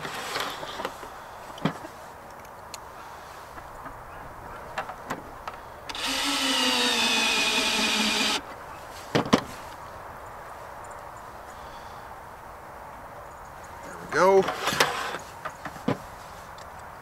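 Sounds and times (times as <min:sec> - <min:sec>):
cordless drill screwing: 0:05.9 - 0:08.4, 0:14.5 - 0:15.2.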